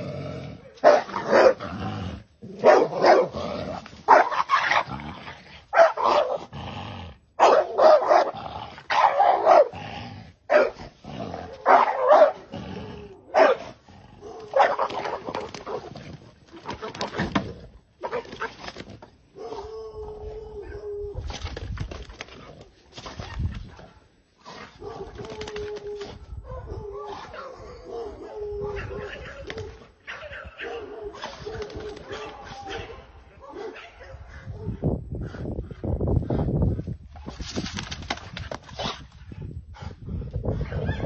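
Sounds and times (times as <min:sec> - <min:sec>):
dog barking: 0:00.6 - 0:01.6, 0:02.6 - 0:03.4, 0:04.1 - 0:04.4, 0:05.7 - 0:06.4, 0:07.4 - 0:09.8, 0:10.5 - 0:10.8, 0:11.6 - 0:12.5, 0:13.3 - 0:15.8, 0:24.8 - 0:25.2, 0:26.4 - 0:29.4, 0:30.0 - 0:34.8.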